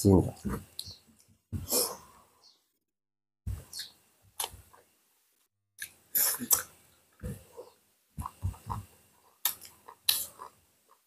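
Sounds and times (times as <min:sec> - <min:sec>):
chewing and mouth noises: 0:05.8 - 0:11.0.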